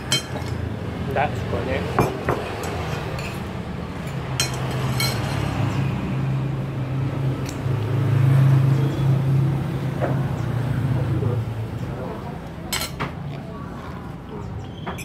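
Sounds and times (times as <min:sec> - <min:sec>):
cutlery clinking against plate: 0:00.0 - 0:00.6, 0:02.0 - 0:05.5, 0:12.7 - 0:13.2, 0:14.8 - 0:15.0.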